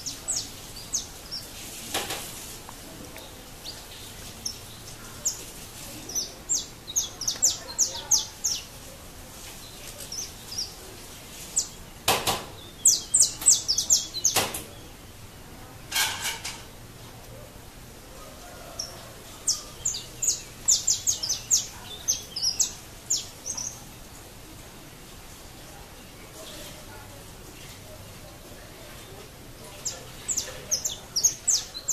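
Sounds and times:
finches chirping: 0:03.2 - 0:08.8, 0:12.6 - 0:15.0, 0:18.8 - 0:24.0, 0:29.7 - 0:31.9.

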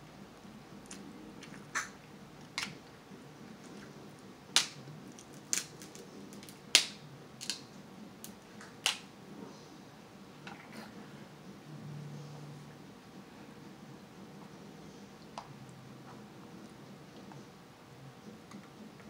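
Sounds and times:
crab shells cracking: 0:04.2 - 0:09.1.

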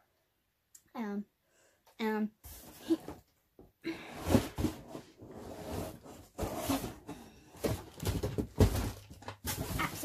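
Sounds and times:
knocks and bumps on cardboard box: 0:06.3 - 0:10.0.

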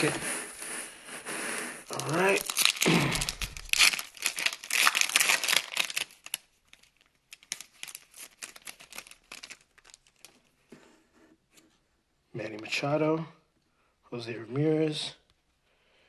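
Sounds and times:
foil wrapper crinkling: 0:01.9 - 0:10.5.

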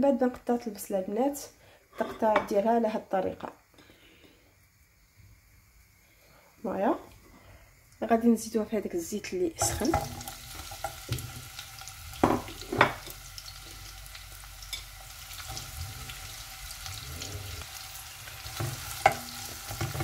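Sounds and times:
onion sizzling in hot oil: 0:06.6 - 0:20.0.

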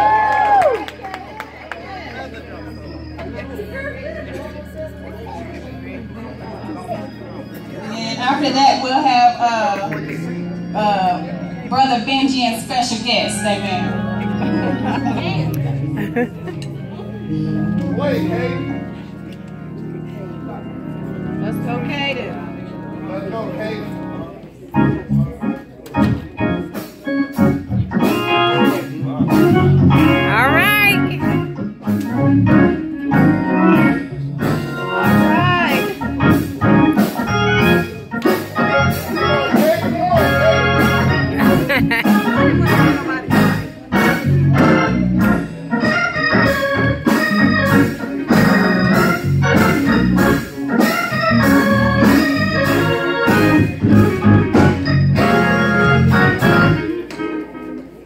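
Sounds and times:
organ playing chords: 0:00.0 - 0:58.0
drum kit beating rhythm: 0:26.0 - 0:56.8.

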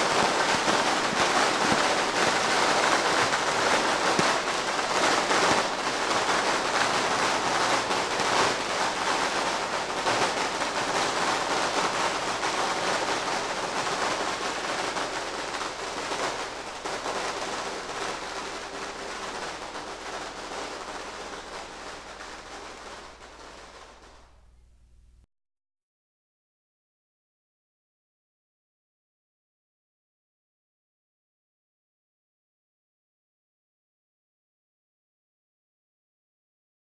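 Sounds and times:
firecrackers crackling: 0:00.0 - 0:25.3.

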